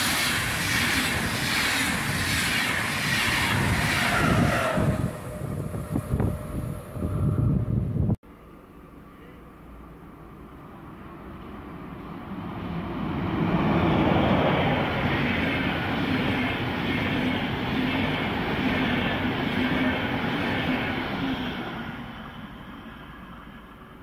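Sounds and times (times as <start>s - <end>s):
train wheels rumbling on rails: 0.0s - 8.2s, 10.7s - 24.0s
electric locomotive passing: 0.0s - 24.0s.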